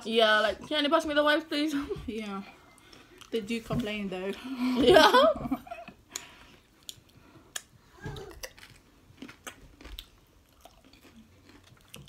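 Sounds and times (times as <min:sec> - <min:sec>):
chips crunching while chewed: 0:08.2 - 0:12.0.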